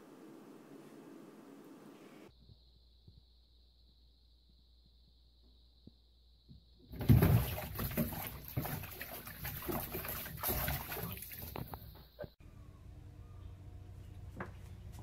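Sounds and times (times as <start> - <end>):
cat scrabbling against tub wall: 6.9 - 11.8
cat splashing into water: 7.0 - 11.8.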